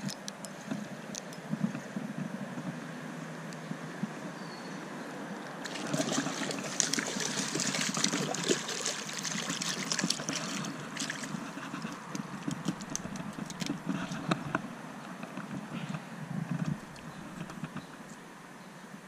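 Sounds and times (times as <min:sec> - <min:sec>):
crackly handling noise: 0:00.0 - 0:01.8, 0:09.8 - 0:18.2
water splashing and dripping: 0:05.6 - 0:14.2.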